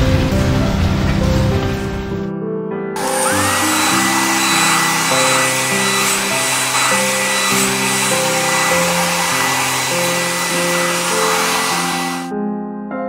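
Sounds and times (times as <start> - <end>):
hair dryer blowing air: 3.0 - 12.3.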